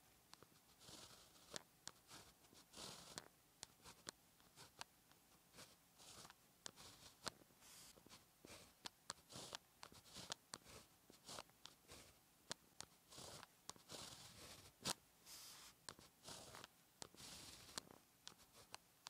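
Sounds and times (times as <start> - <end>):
pen scratching on paper: 0.3 - 18.8
pen tip tapping paper: 0.8 - 4.9, 8.5 - 15.0, 15.8 - 18.8.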